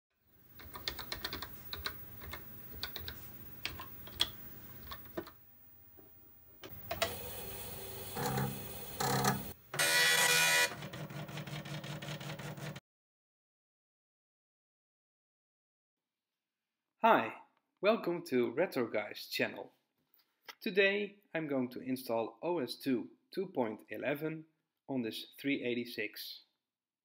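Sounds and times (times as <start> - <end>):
keyboard keys clicking: 0.6 - 5.4
floppy drive whirring: 6.6 - 12.8
dot matrix printer rattling: 8.1 - 12.8.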